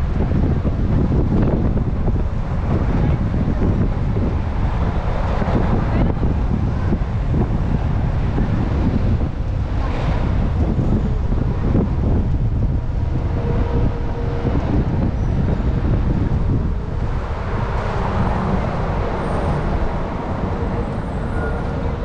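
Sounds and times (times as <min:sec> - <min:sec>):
bus rumbling: 0:00.0 - 0:22.0
city traffic: 0:00.0 - 0:22.0
wind buffeting microphone: 0:00.0 - 0:22.0.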